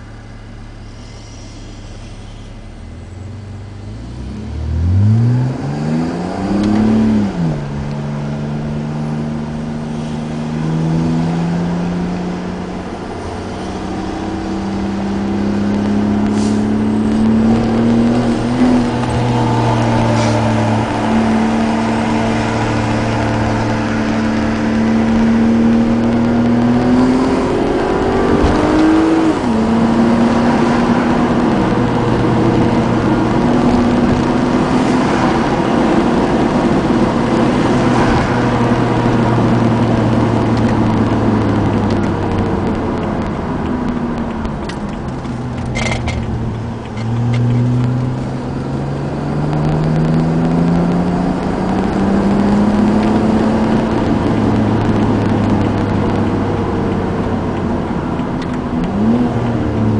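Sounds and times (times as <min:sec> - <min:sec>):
car engine and exhaust while driving: 0:00.0 - 0:59.9.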